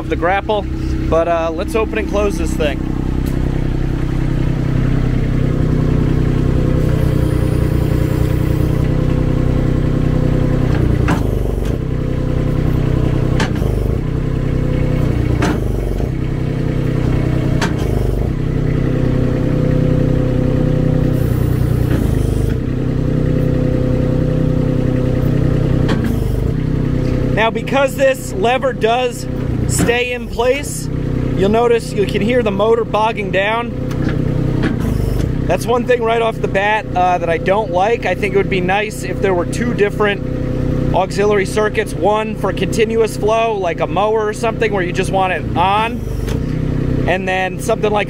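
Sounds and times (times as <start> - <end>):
diesel engine running: 0.0 - 48.0
hydraulics working: 0.0 - 48.0
grapple jaws clanking: 15.0 - 16.2.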